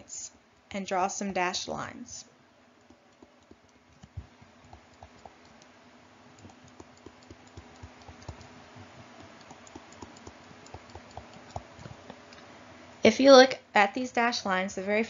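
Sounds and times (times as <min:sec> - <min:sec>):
faint low hum: 0:00.0 - 0:15.0
light clicks and taps on a screen: 0:02.8 - 0:05.7, 0:06.4 - 0:08.5, 0:09.2 - 0:12.4.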